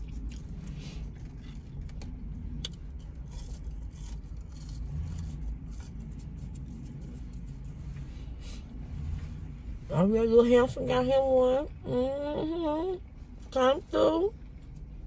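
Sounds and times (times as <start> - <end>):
car cabin rumble: 0.0 - 15.0.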